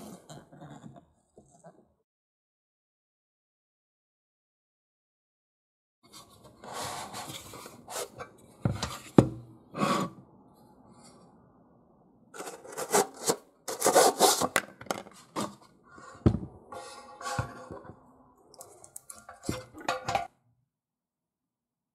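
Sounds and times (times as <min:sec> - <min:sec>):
metal and plastic scraping: 0:12.4 - 0:18.0, 0:18.6 - 0:20.3.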